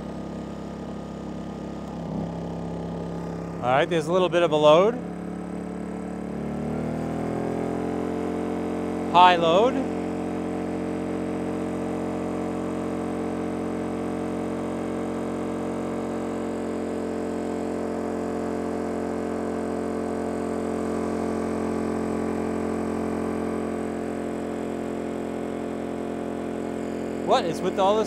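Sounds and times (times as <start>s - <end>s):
generator engine droning: 0.0s - 28.0s.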